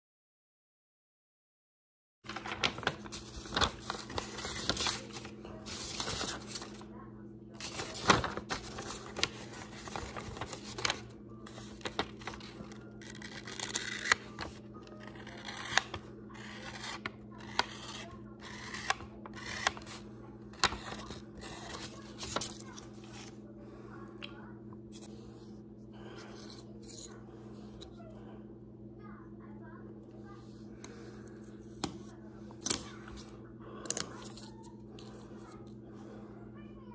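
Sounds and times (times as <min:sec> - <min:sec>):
paper rustling and crinkling: 0:02.3 - 0:06.9, 0:07.6 - 0:23.4
steady low hum: 0:02.3 - 0:36.9.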